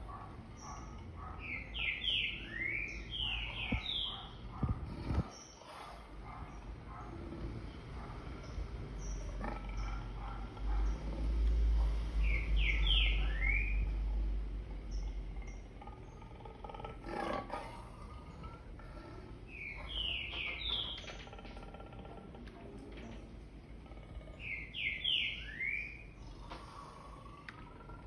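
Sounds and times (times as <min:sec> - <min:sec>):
bird chirps: 0:00.6 - 0:04.4, 0:12.2 - 0:14.0, 0:19.5 - 0:21.3, 0:24.4 - 0:26.5
lion roaring: 0:09.3 - 0:11.7, 0:15.3 - 0:19.4.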